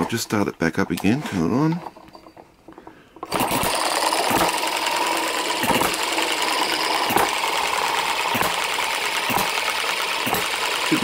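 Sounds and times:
hit-and-miss engine running: 3.3s - 11.0s.

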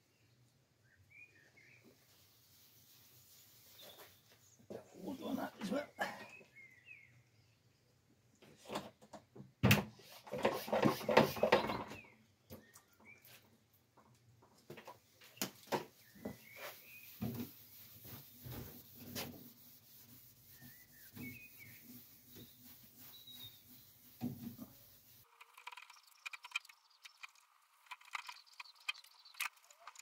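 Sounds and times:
bird chirping: 3.6s - 7.9s, 15.2s - 19.2s, 20.1s - 30.0s
cloth rubbing car panel: 15.8s - 25.3s.

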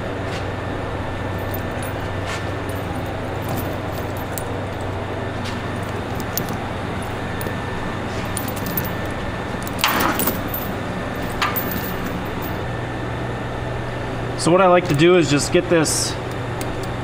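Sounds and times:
steady low hum: 0.0s - 17.0s
chain rattling: 1.3s - 12.7s
steel chain links clinking: 1.3s - 12.7s.

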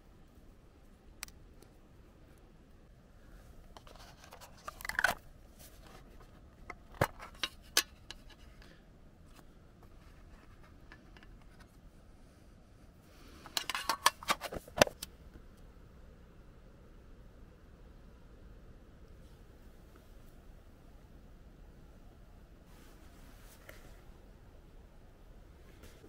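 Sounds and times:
metal tin lid clicking: 13.6s - 15.1s.

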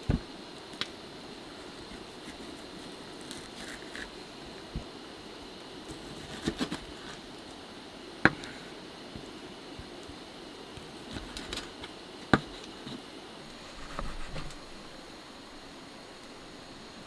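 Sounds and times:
steady hiss: 0.0s - 17.0s.

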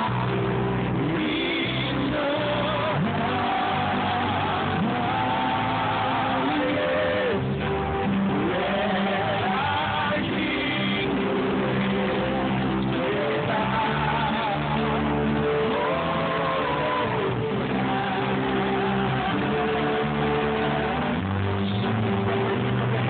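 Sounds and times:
voices singing slow melody: 0.0s - 23.0s.

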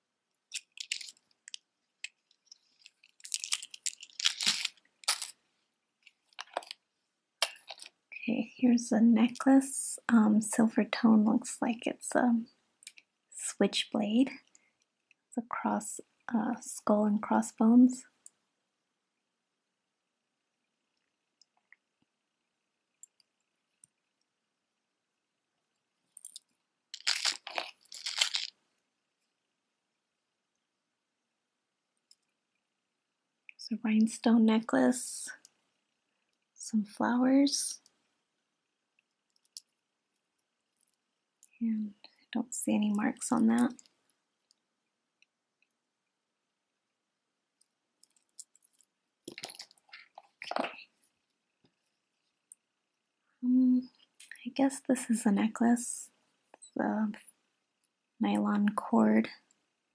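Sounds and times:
cardboard card rustling: 0.5s - 1.2s, 2.4s - 5.3s, 27.0s - 28.5s
metal jewelry rattling and clinking: 0.5s - 5.3s, 27.0s - 28.5s.

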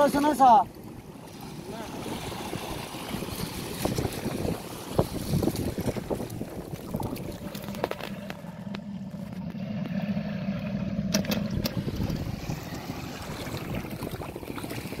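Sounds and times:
low engine drone: 0.7s - 15.0s
wind buffeting microphone: 1.8s - 8.8s, 11.4s - 15.0s.

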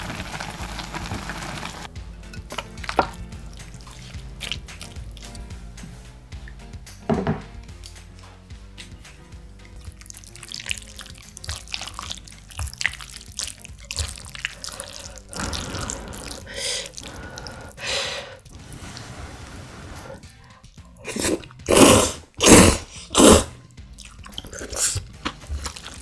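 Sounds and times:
chopsticks stirring noodles in broth: 9.7s - 20.2s.

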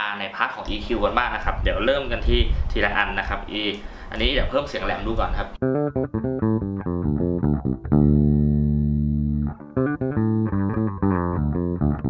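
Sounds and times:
electric bass plucked notes: 5.5s - 12.0s.

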